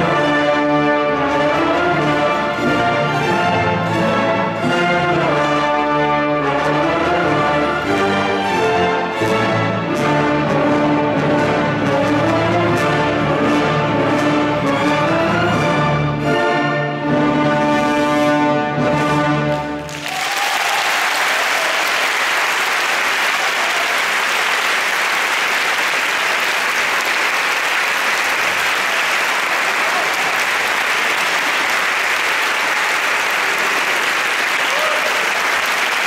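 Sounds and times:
audience applauding: 0:19.5 - 0:36.0.

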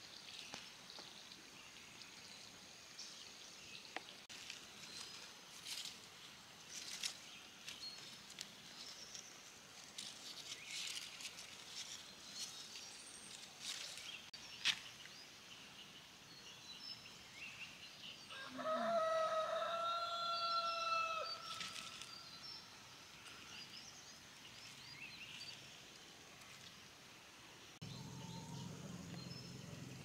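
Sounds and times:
small birds chirping: 0:00.0 - 0:18.2, 0:20.7 - 0:30.0
rooster crowing: 0:18.3 - 0:21.8.

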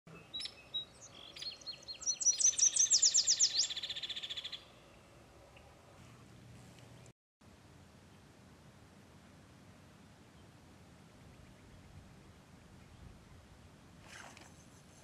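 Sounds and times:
songbird singing: 0:00.1 - 0:05.8, 0:09.9 - 0:14.0.

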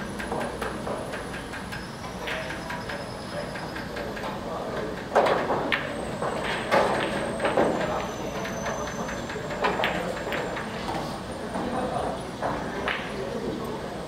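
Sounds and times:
pool balls clicking: 0:00.0 - 0:10.7.

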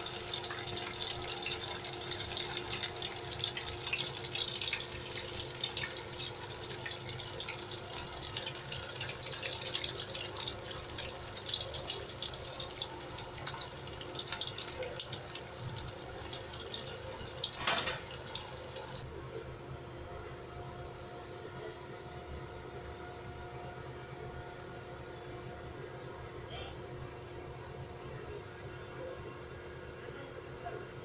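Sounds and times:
food deep-frying in hot oil: 0:00.0 - 0:19.0.

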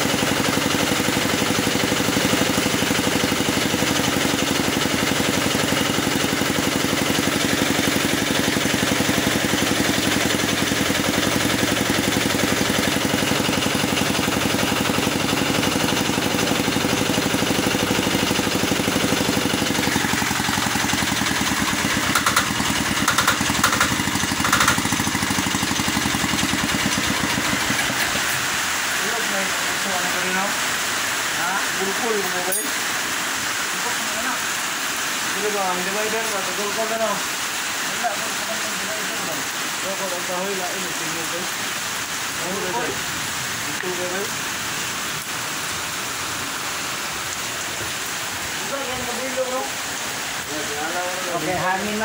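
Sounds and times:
small diesel engine running: 0:00.0 - 0:52.0
sharp knocks: 0:22.0 - 0:24.9.

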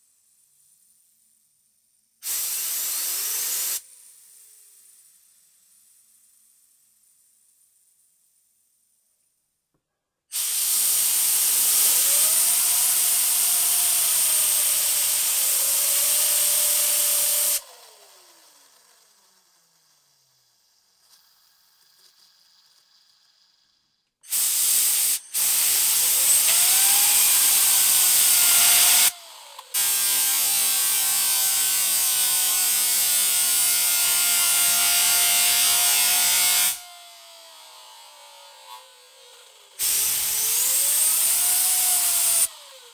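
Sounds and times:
loud steady hiss: 0:10.4 - 0:17.6, 0:23.0 - 0:29.1, 0:39.8 - 0:42.5
bearing spinning whine: 0:17.6 - 0:24.2, 0:25.2 - 0:29.7.

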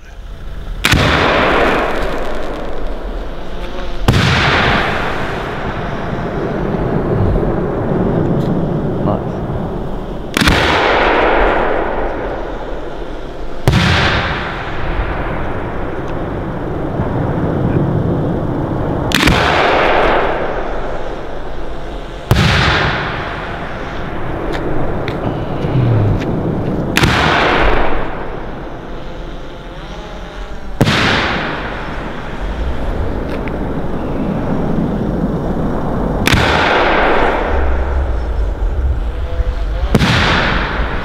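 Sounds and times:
long booming echo: 0:00.4 - 0:29.6, 0:30.4 - 0:41.0
firework shells booming: 0:00.7 - 0:29.0, 0:30.7 - 0:41.0.

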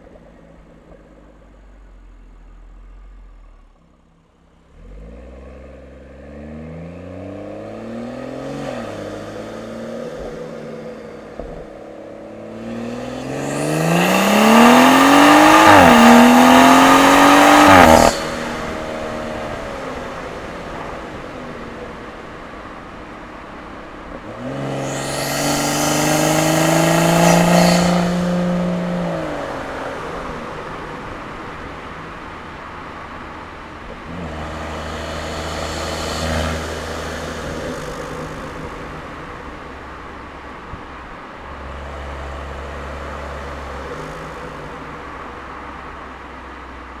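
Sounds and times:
car engine revving: 0:04.4 - 0:40.4.

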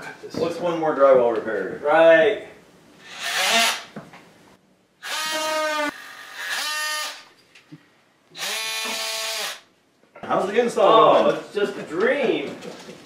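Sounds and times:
multi-tool cutting drywall: 0:03.0 - 0:03.9, 0:05.0 - 0:07.3, 0:08.4 - 0:09.7.

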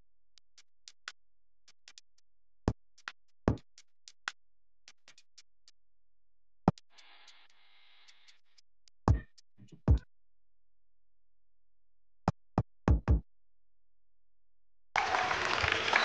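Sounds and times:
drum-machine beat: 0:09.1 - 0:10.0, 0:12.9 - 0:13.2.

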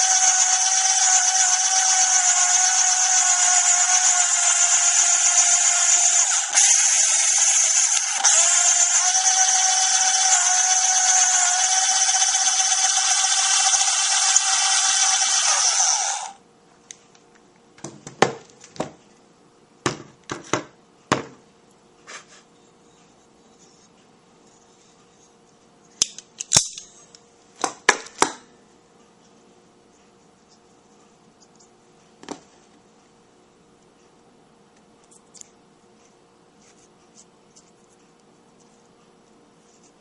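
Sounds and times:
electric drill whining: 0:00.0 - 0:16.4.

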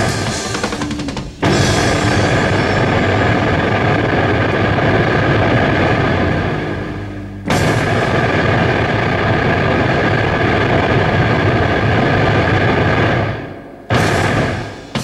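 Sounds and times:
rock band chord: 0:00.0 - 0:10.0.

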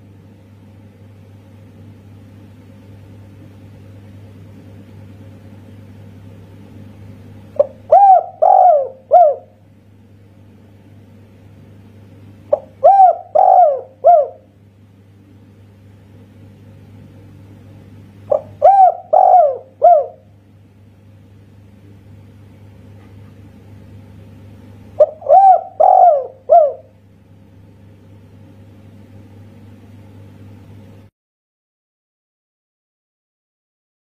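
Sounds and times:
steady low hum: 0:00.0 - 0:31.1
dove cooing: 0:07.5 - 0:09.6, 0:12.5 - 0:14.5, 0:18.3 - 0:20.3, 0:25.0 - 0:27.0.

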